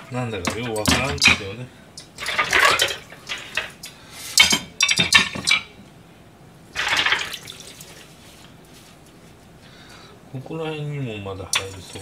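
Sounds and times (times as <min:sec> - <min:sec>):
dishes clinking: 0:00.0 - 0:05.8, 0:06.8 - 0:07.8, 0:11.5 - 0:12.0
tap water running: 0:06.8 - 0:08.2.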